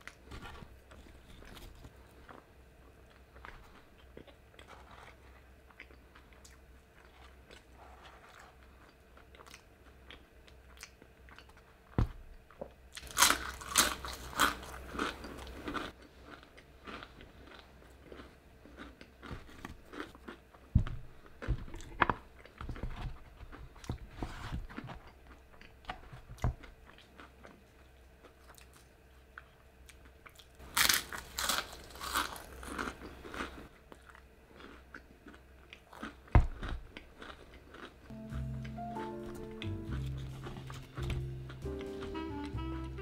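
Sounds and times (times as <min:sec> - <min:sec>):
person crunching fried food: 0:13.0 - 0:20.7, 0:28.3 - 0:38.1.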